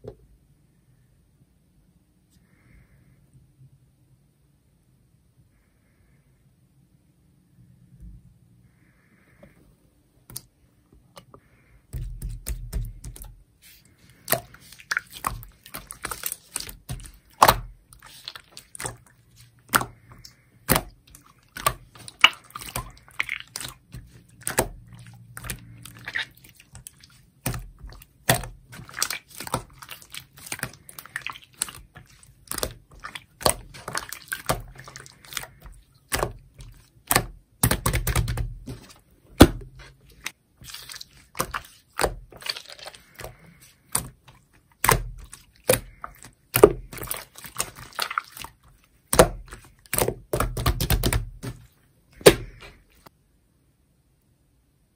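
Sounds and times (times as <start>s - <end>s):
slime squished by hand: 12.0s - 53.1s.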